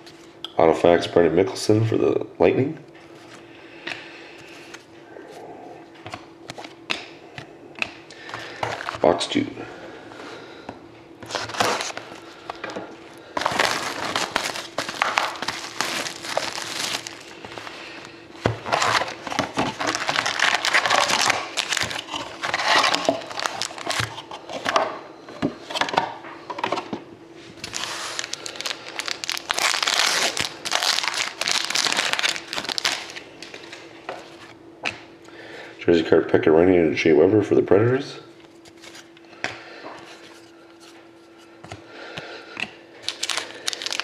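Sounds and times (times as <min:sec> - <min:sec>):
card packs tearing open: 0:08.1 - 0:09.2, 0:11.2 - 0:12.6, 0:13.2 - 0:24.7, 0:27.6 - 0:33.8, 0:43.0 - 0:44.0
plastic wrap crinkling: 0:11.2 - 0:12.6, 0:13.2 - 0:24.3, 0:27.6 - 0:34.4, 0:43.0 - 0:44.0.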